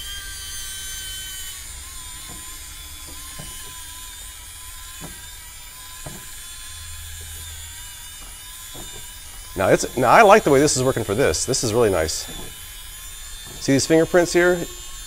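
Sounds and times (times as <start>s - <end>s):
spinning brush motor whining: 0.0s - 15.0s
brush knocking blind slats: 2.2s - 6.5s, 8.1s - 14.7s.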